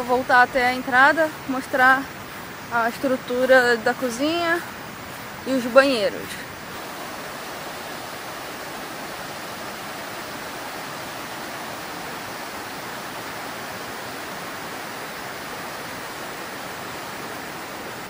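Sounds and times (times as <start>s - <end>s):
river rushing over stones: 0.0s - 18.0s.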